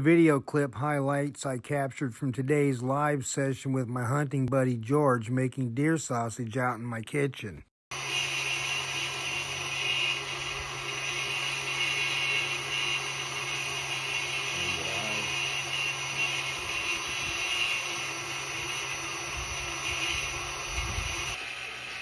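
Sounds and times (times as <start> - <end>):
stand mixer motor whining: 7.9 - 22.0.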